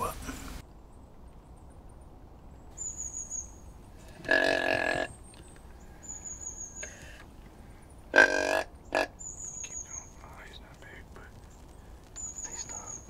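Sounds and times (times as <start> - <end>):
nasal bleating animal calls: 4.1 - 5.1, 8.1 - 9.2.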